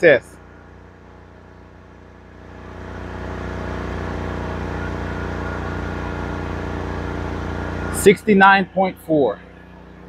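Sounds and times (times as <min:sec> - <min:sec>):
generator engine humming: 0:00.0 - 0:10.0.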